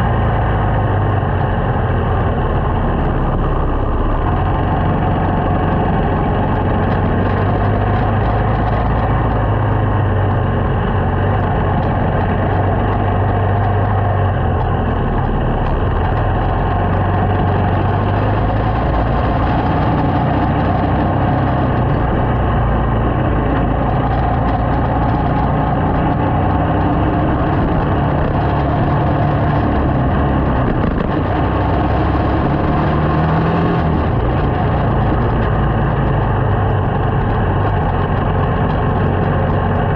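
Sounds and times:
road noise: 0.0 - 39.9
small motorcycle engine riding: 0.0 - 39.9.

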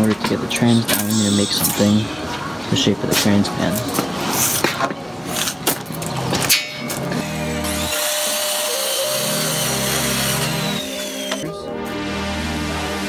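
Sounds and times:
background music: 7.0 - 13.0
circular saw cutting wood: 7.1 - 11.5.

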